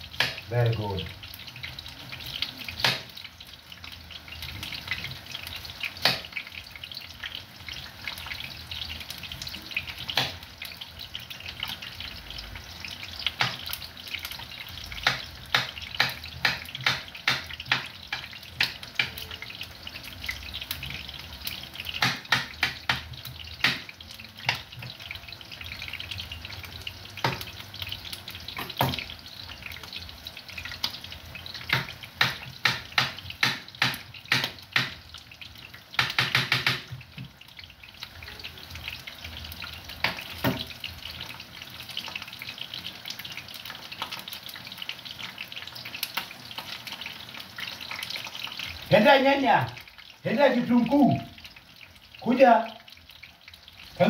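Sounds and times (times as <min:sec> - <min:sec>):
frying hiss: 0:00.0 - 0:54.0.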